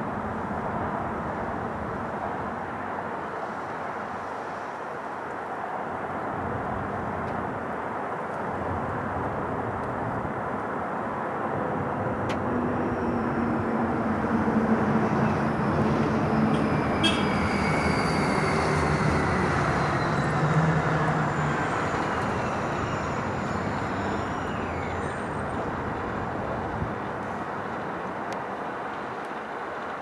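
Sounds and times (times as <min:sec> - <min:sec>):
jet engines rumbling: 0:00.0 - 0:30.0
high whines gliding down: 0:11.5 - 0:29.0.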